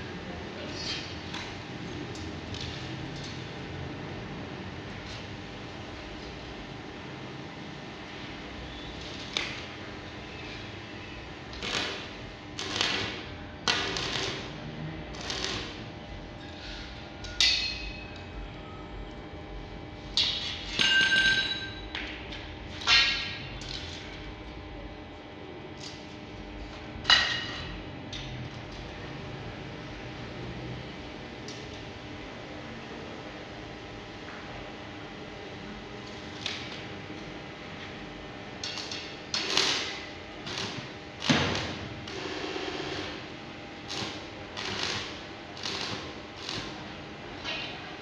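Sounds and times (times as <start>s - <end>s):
welding arc crackling: 11.3s - 16.8s, 35.9s - 47.4s.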